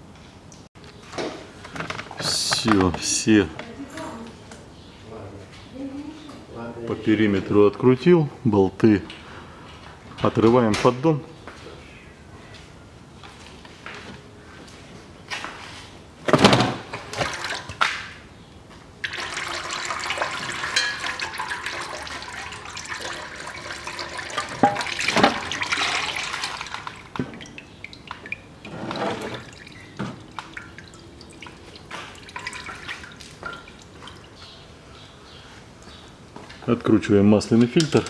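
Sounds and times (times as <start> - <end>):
fluid pouring and splashing: 17.1 - 17.8, 19.0 - 34.4.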